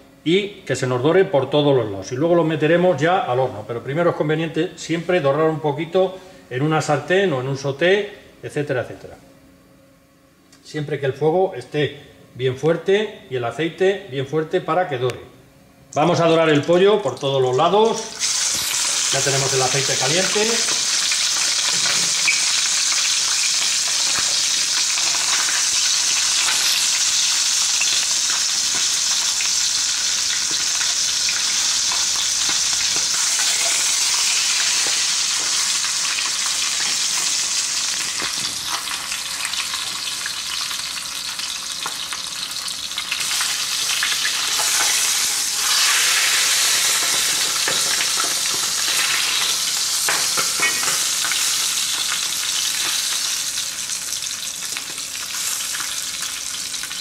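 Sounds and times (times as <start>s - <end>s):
chicken sizzling in hot oil: 17.7s - 57.0s.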